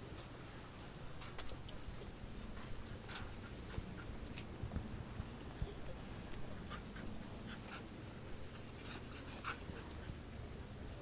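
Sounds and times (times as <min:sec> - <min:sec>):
dog whimpering: 0:05.3 - 0:06.7.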